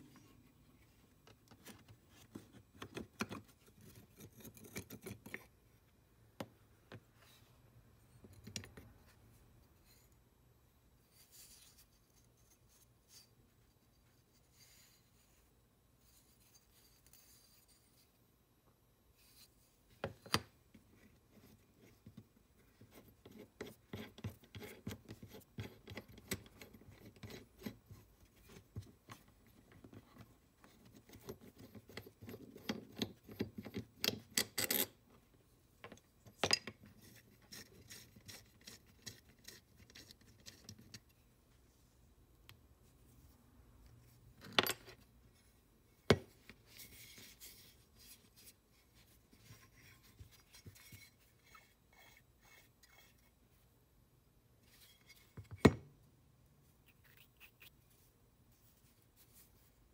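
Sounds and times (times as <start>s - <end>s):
light metal clicking and rubbing: 46.3s - 53.4s.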